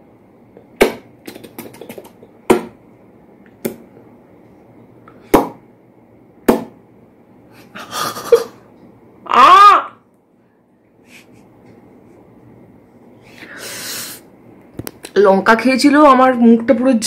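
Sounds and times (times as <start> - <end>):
breathy hiss: 13.2 - 14.3.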